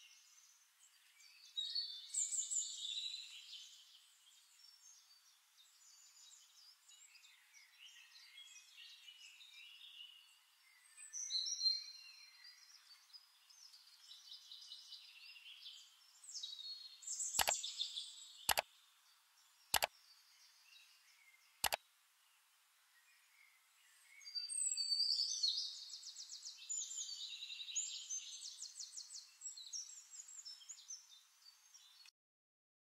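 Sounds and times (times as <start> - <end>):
birds chirping: 17.0 - 21.8
sharp clicks: 18.5 - 18.7, 19.7 - 19.9.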